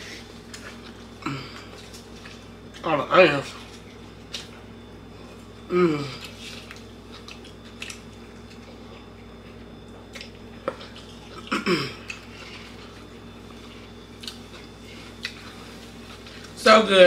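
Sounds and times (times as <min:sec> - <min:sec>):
person humming mm: 0:05.7 - 0:06.3
eating sounds: 0:05.9 - 0:16.6.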